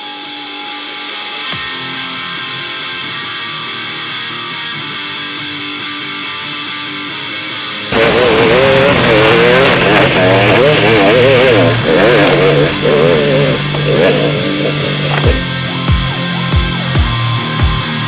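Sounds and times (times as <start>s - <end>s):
guitar-led music: 0.0s - 18.0s.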